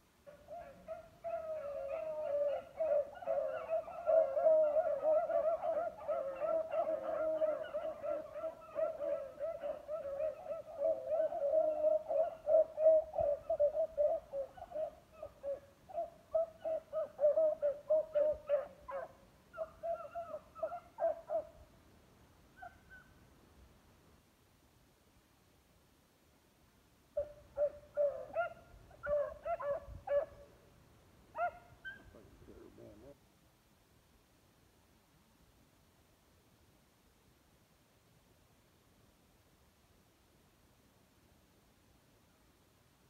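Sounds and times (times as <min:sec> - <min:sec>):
beagles baying: 0:00.3 - 0:21.6, 0:27.2 - 0:30.5, 0:31.3 - 0:33.1.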